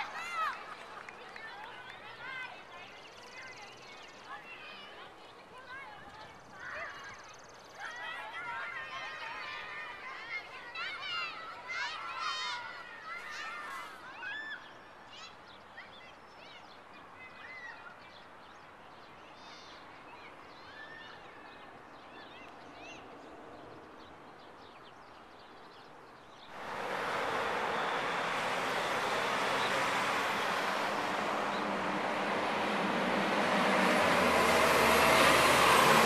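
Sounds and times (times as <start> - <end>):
loud street traffic noise: 26.5 - 36.0.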